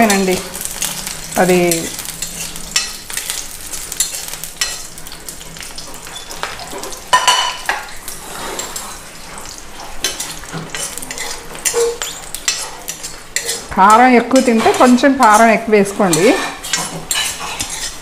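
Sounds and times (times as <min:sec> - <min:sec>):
chillies sizzling in oil: 0:00.0 - 0:18.0
metal spatula scraping pan: 0:06.0 - 0:18.0.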